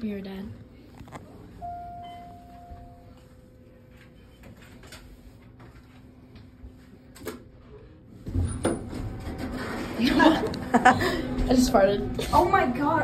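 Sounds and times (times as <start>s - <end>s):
elevator chime tone: 1.6s - 4.4s
low hum: 8.8s - 13.0s.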